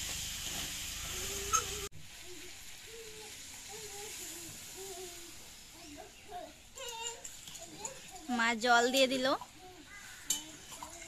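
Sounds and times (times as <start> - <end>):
curry sizzling in metal pan: 0.0 - 11.0
ladle clinking metal: 10.3 - 11.0.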